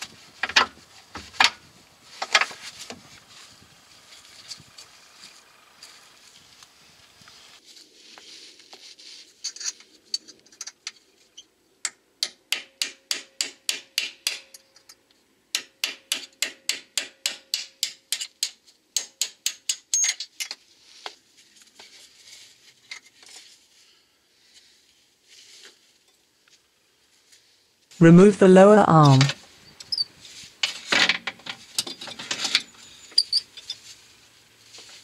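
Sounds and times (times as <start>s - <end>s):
scraping and handling of bolt: 9.4s - 11.0s, 29.8s - 34.0s.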